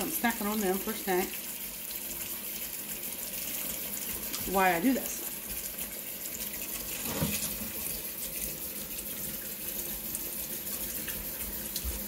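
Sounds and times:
tap running into sink: 6.6s - 8.1s, 10.9s - 12.0s.

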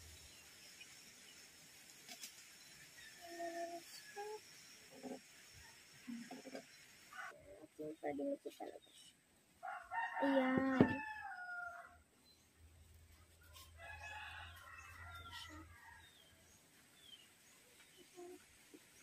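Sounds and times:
rooster crowing: 9.6s - 12.0s, 13.8s - 16.2s.

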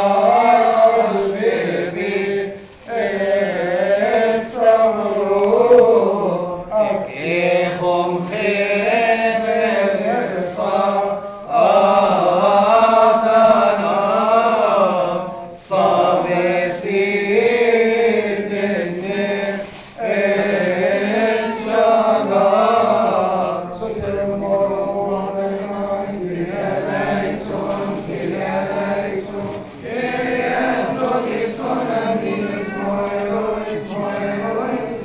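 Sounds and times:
liturgical chant: 0.0s - 35.0s.

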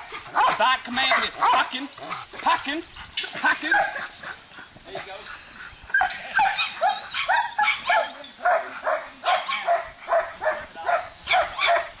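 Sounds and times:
dog barking: 0.3s - 1.7s, 3.7s - 4.1s, 6.0s - 12.0s.

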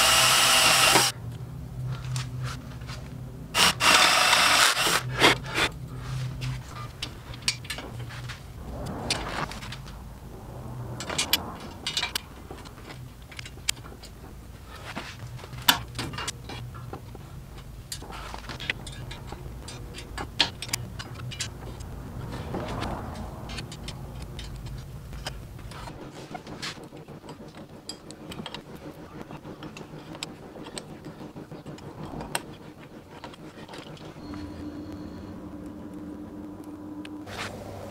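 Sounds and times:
low steady hum: 0.0s - 37.9s.

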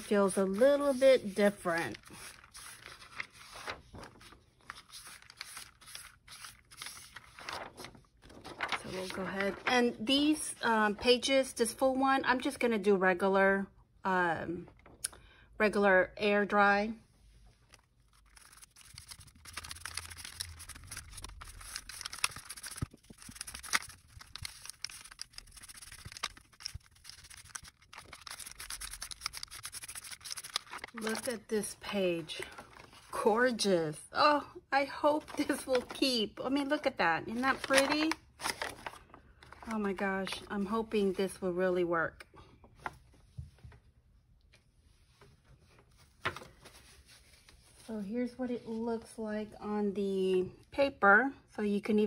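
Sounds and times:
small clicks and crinkles: 7.4s - 9.7s.

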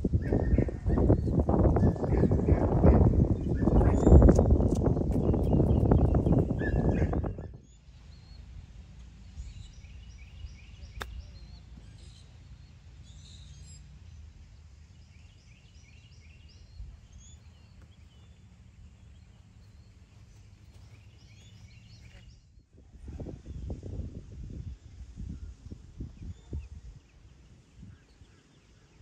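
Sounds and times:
birds chirping: 0.1s - 22.7s
golf club hitting ball: 11.0s - 11.2s.

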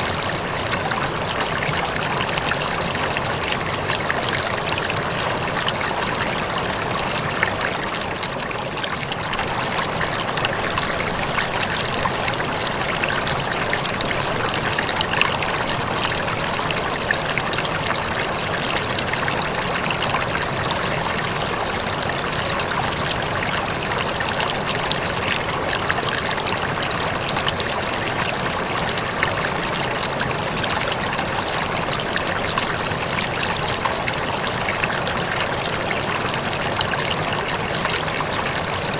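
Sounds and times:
aquarium water trickling: 0.0s - 38.9s.

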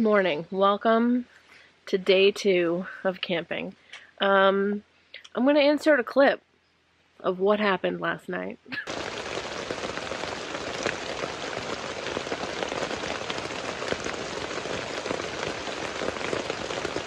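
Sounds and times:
heavy rain pouring: 8.8s - 17.0s.

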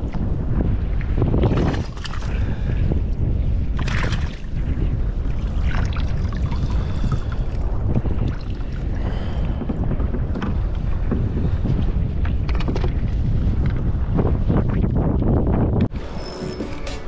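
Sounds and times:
water lapping around kayak: 0.0s - 15.7s
wind on microphone: 0.0s - 17.0s
splashes and knocks: 1.4s - 2.4s, 3.8s - 4.5s.

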